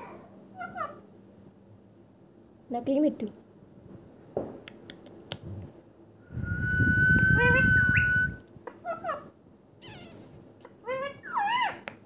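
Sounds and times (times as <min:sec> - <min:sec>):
steady whistle: 0:06.2 - 0:08.4
parakeets chirping: 0:09.8 - 0:11.8.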